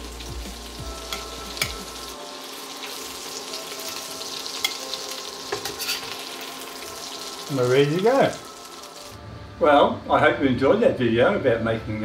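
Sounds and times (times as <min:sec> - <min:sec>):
fish sizzling in a pan: 0:00.0 - 0:09.2.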